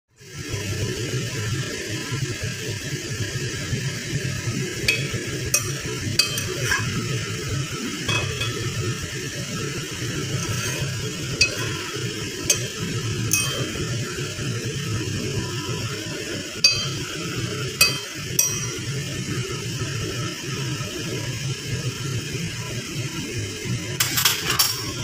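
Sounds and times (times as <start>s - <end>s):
spoon clinking against pot: 4.9s - 7.0s, 8.1s - 8.8s, 10.4s - 13.8s, 16.6s - 17.1s, 17.8s - 18.9s.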